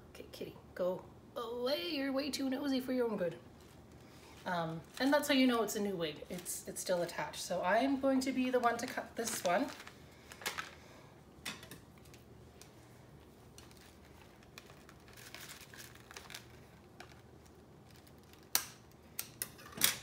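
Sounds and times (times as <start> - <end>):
scissors snipping plastic: 17.9 - 20.0.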